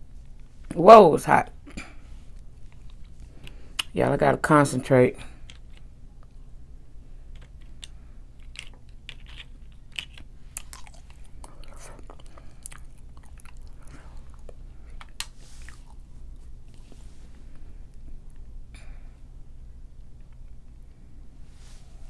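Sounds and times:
fingernails cracking seafood shells: 7.3s - 15.3s.

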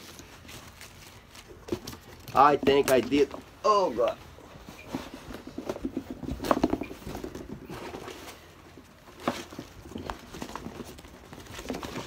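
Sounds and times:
cardboard scraping and rustling: 4.4s - 12.0s.

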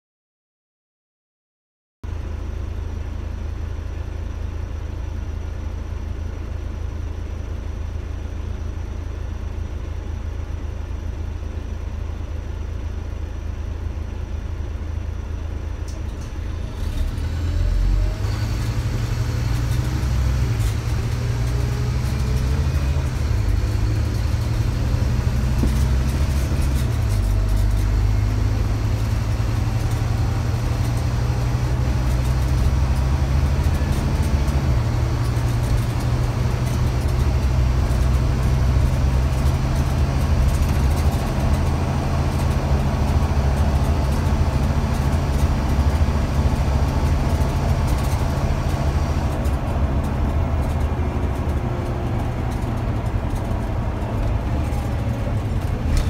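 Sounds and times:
bus diesel engine idling: 2.1s - 56.0s
bus engine revving and shifting: 15.9s - 56.0s.

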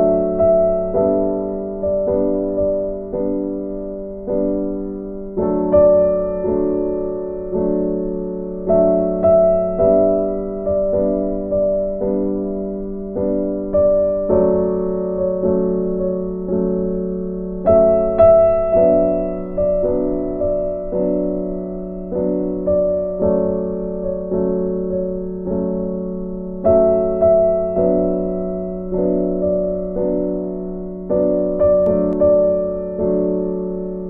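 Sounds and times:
piano single notes: 0.0s - 34.0s.

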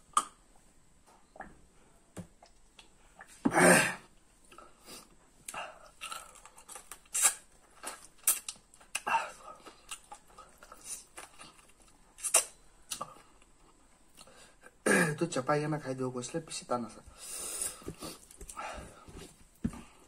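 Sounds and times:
man eating with lip smacks: 0.0s - 0.5s, 2.3s - 3.4s, 4.4s - 14.4s, 17.6s - 18.6s.

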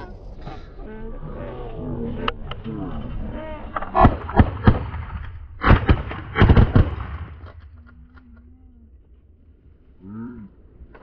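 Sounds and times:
shotgun blasts: 3.9s - 7.6s.

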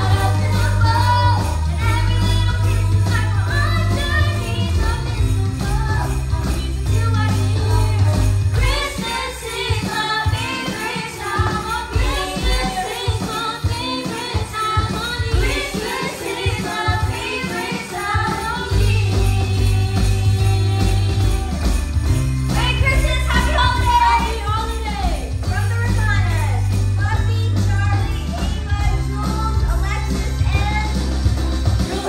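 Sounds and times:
women singing: 0.0s - 21.9s, 22.6s - 25.3s.

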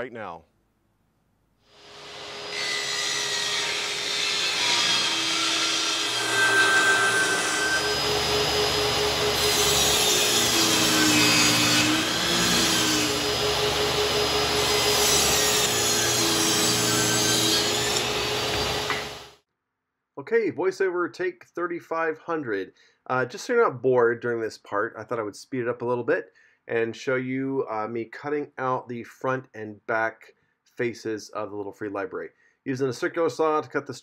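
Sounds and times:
table saw cutting wood: 1.8s - 19.4s.

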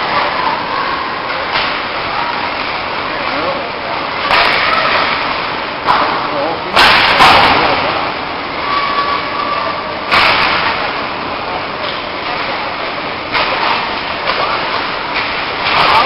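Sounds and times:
hockey sticks and puck clattering: 1.4s - 3.5s, 4.2s - 8.0s, 10.1s - 11.0s, 11.8s - 16.0s.

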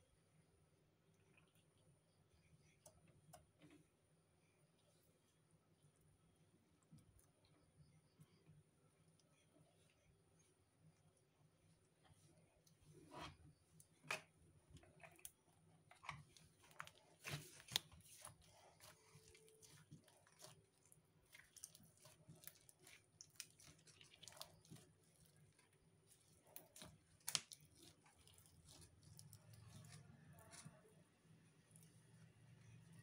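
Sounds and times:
slime sticky clicks and crackles: 26.6s - 28.4s.

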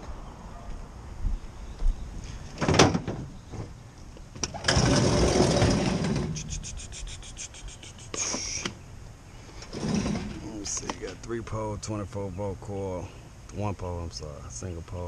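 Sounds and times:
tailgate dropping open clunk: 2.6s - 3.3s
short rattle: 4.4s - 6.6s, 9.6s - 11.2s
drawer sliding out rumble: 4.5s - 6.4s, 9.6s - 10.6s.

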